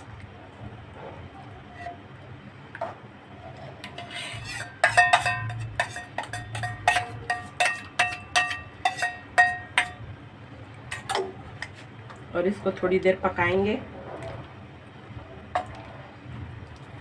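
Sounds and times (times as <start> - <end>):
metal spoon clinking on steel bowl: 3.9 - 10.1.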